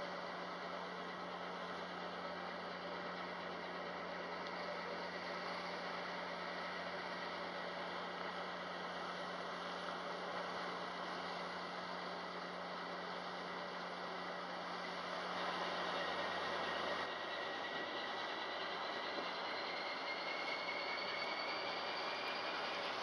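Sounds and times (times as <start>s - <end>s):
low engine hum: 0.0s - 23.0s.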